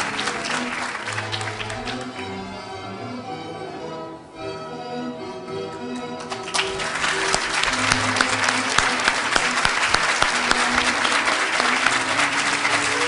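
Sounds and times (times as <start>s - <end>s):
large audience applauding: 0.0s - 2.2s, 6.0s - 13.0s.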